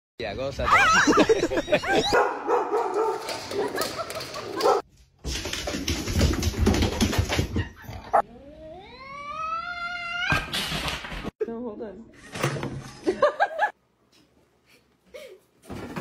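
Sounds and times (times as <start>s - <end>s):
dogs whimpering: 0.7s - 2.2s
dogs barking: 0.7s - 4.9s.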